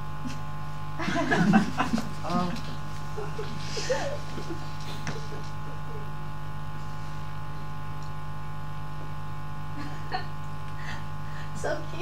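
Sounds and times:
electrical hum and buzz: 0:00.0 - 0:12.0.

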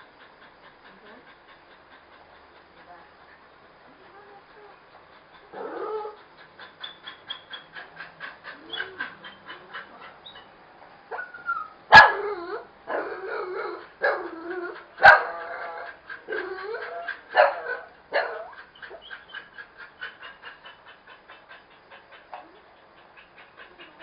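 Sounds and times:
dogs barking: 0:11.1 - 0:20.7.

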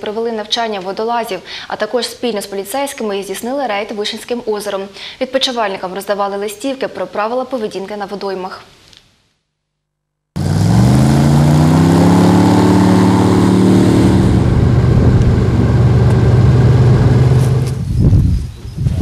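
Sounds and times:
airboat engine and propeller running: 0:10.4 - 0:17.8.

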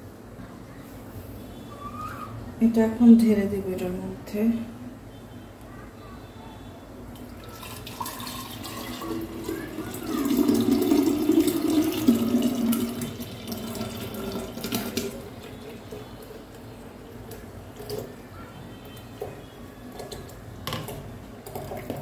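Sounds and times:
milkshake pouring into a jug: 0:07.1 - 0:22.0.

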